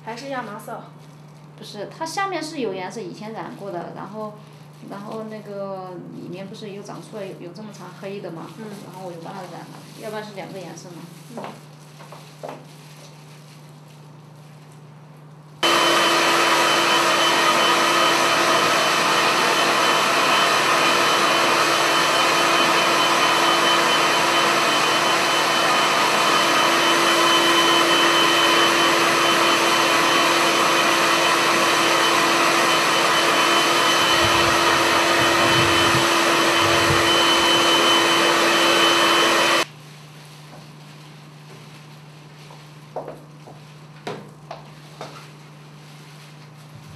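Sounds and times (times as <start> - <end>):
hair dryer blowing: 15.6 - 39.7.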